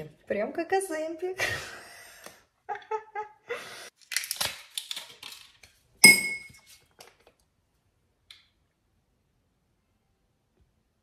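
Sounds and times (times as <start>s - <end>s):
glass clink with ringing: 6.0s - 6.6s.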